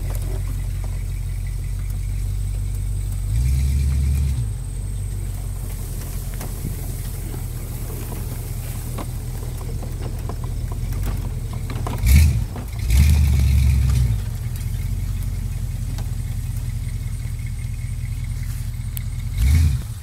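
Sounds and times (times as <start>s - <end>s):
buggy engine running: 0.0s - 20.0s
engine revving: 0.0s - 20.0s.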